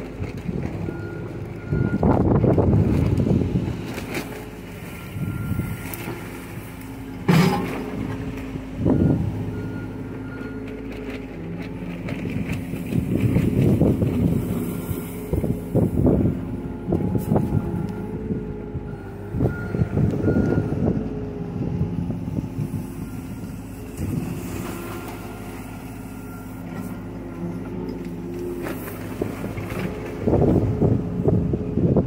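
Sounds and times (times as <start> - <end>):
excavator diesel engine under load: 0.0 - 32.0.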